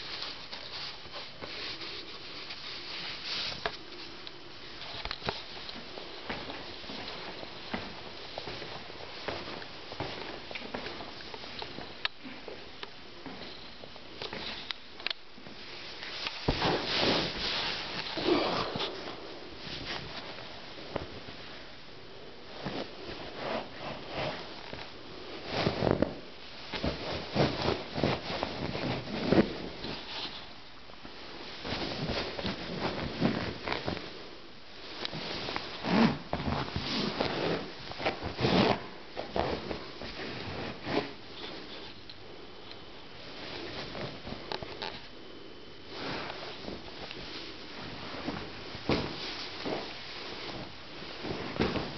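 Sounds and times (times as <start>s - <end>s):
cloth rubbing on microphone: 15.8s - 20.5s
clothing rustling against phone: 22.4s - 30.6s, 45.8s - 51.9s.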